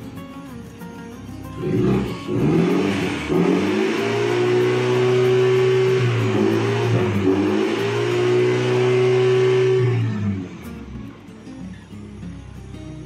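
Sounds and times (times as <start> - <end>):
car engine revving: 1.6 - 11.8.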